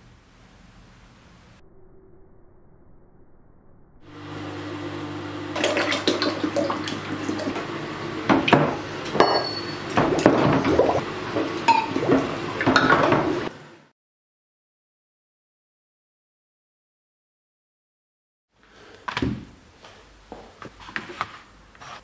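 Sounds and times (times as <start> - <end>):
water sloshing in a plastic tub: 5.5 - 7.7.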